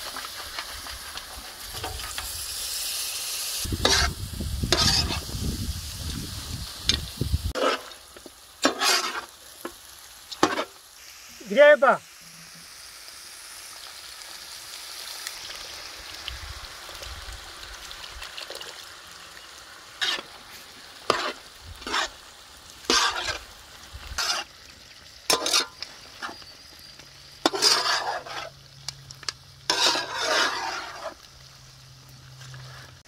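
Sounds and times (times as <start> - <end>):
meat sizzling on a griddle: 0.0 - 33.0
spatula scraping griddle: 3.6 - 5.4, 6.9 - 10.8, 20.0 - 24.5, 25.3 - 26.6, 27.4 - 28.6, 29.6 - 31.3.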